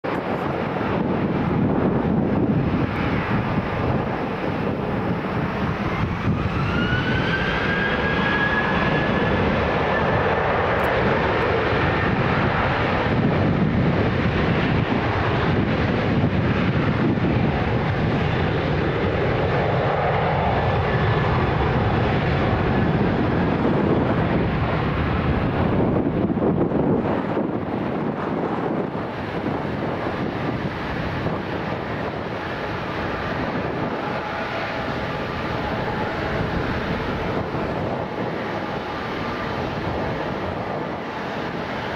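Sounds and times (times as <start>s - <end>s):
jet engines spooling up: 0.1s - 41.9s.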